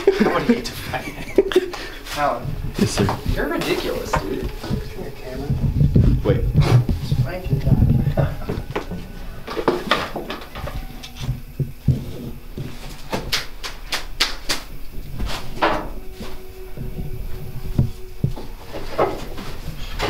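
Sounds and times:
footsteps: 0.0 - 20.0.

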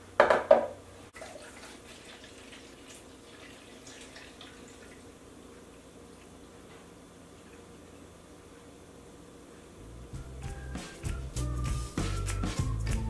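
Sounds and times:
juice pouring into a cup: 1.2 - 5.2.

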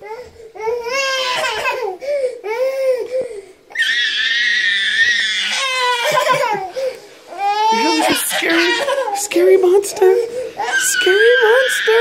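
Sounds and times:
toddler crying: 0.0 - 9.4, 10.0 - 12.0
toddler shrieking: 3.7 - 6.4, 7.4 - 9.1, 10.6 - 12.0.

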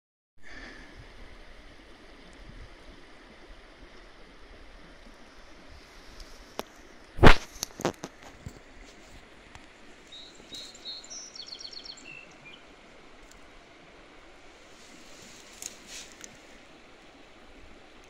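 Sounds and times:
outdoor background hiss: 0.4 - 18.0
loud brief crackle: 7.2 - 8.1.

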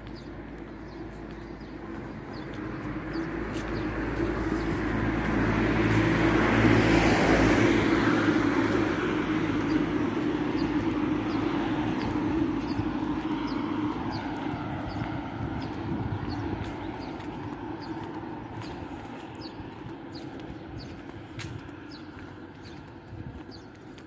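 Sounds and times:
faint birds calling: 0.0 - 4.9
car passing by: 1.9 - 22.8.

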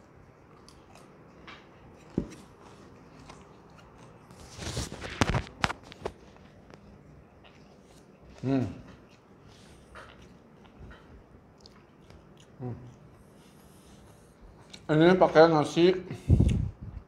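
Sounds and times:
chewing crispy fried chicken: 5.8 - 14.9.

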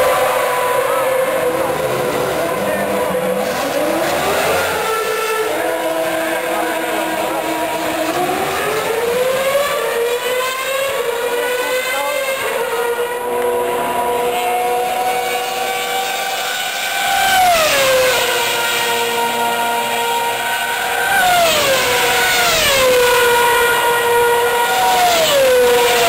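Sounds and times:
racing car engines at high revs: 0.0 - 26.0
racing car passing close: 0.0 - 26.0.

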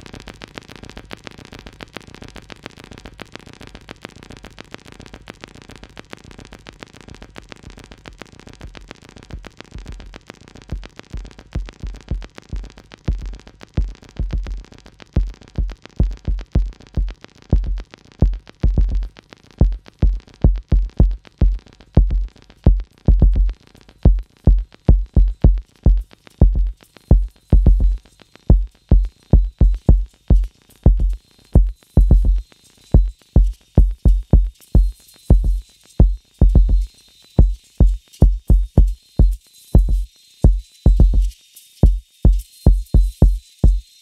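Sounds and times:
drum machine deep kicks: 11.6 - 32.4, 33.0 - 43.8.

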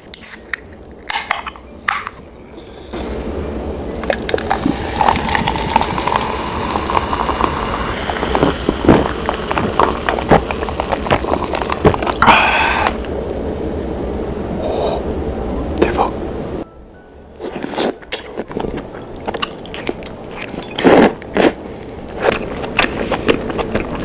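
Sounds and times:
cider pouring and fizzing: 3.9 - 12.2
ice clinking: 4.0 - 12.2.

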